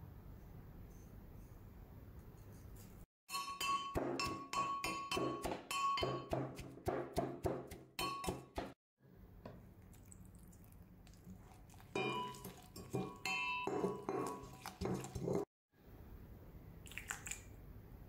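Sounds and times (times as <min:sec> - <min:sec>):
brass pestle pounding in mortar: 0:03.3 - 0:08.8, 0:12.0 - 0:15.5.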